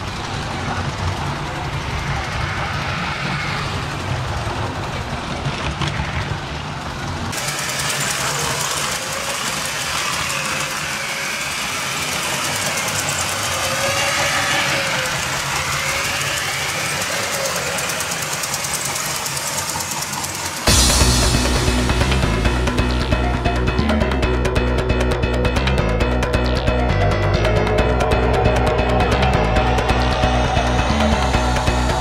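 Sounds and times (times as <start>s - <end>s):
toy train motor hum: 0.0s - 5.6s, 7.2s - 20.9s
wheels whirring on rails: 0.0s - 32.0s.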